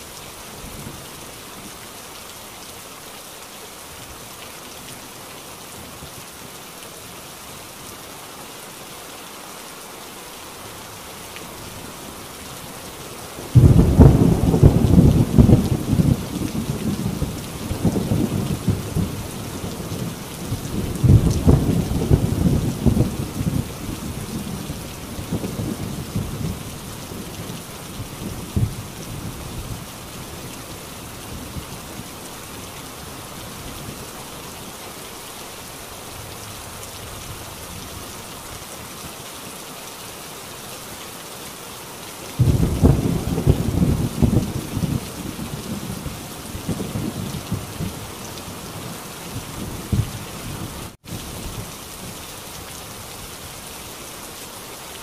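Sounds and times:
heavy rain on a tin roof: 0.0 - 55.0
thunder rolling: 13.6 - 17.2, 42.4 - 45.0.

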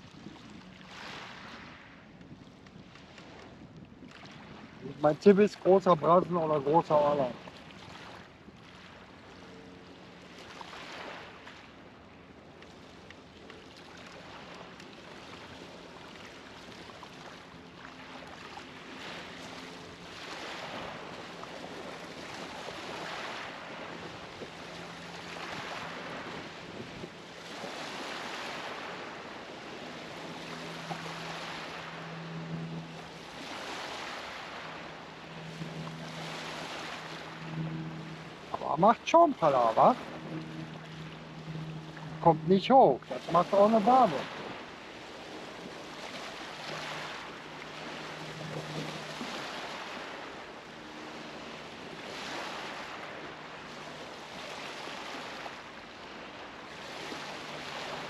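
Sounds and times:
low steady hum: 4.8 - 58.0
waves washing against stone bank: 14.1 - 58.0.

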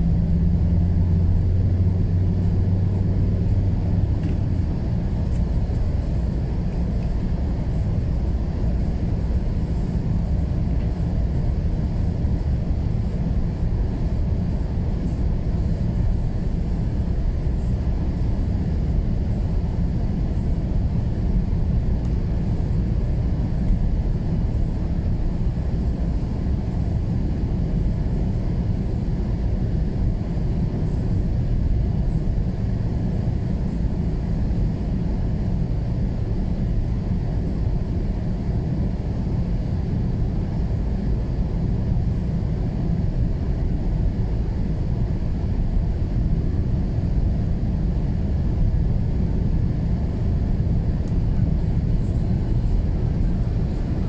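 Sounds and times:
car driving on snowy road: 0.0 - 27.0, 51.0 - 54.0
low hum: 0.0 - 28.9.

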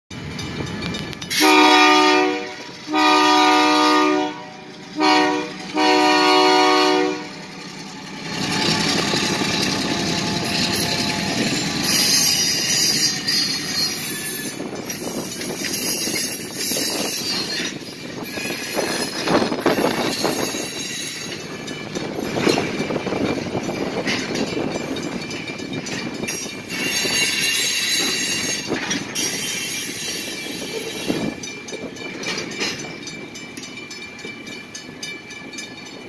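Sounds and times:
train cars clacking over rails: 0.1 - 36.0
locomotive air horn blasts: 1.3 - 7.4
train wheels squealing: 7.6 - 23.2, 26.2 - 33.3.

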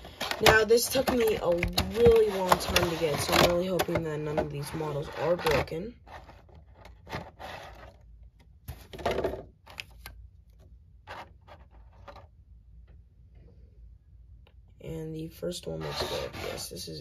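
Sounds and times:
cardboard and plastic rustling: 0.0 - 8.0.

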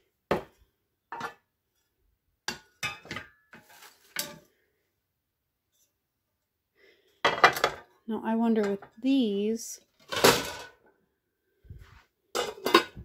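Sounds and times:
frying pans clinking together: 12.4 - 13.0.

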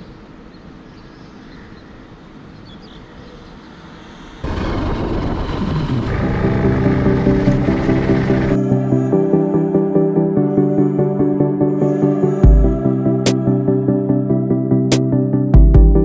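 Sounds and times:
motorcycle engine revving: 4.4 - 8.6
music with bass line: 6.1 - 8.6, 12.4 - 13.9, 14.6 - 16.0.

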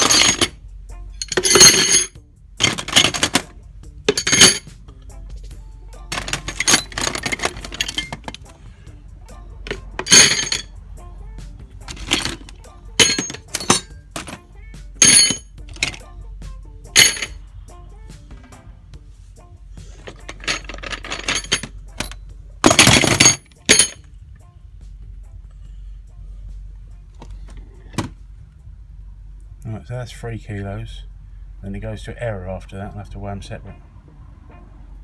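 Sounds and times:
brass parts clinking on metal: 0.0 - 3.5, 4.1 - 4.8, 6.1 - 8.4, 9.7 - 10.7, 11.9 - 14.4, 15.0 - 16.0, 16.9 - 17.4, 20.0 - 24.1.

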